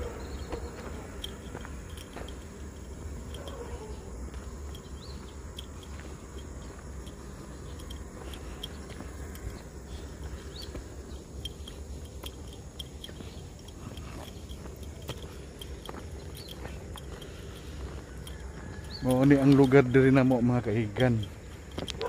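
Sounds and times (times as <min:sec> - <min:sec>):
steady low rumble: 0:00.0 - 0:18.2
footsteps crunching on gravel: 0:00.0 - 0:22.0
faint ticks: 0:00.4 - 0:22.0.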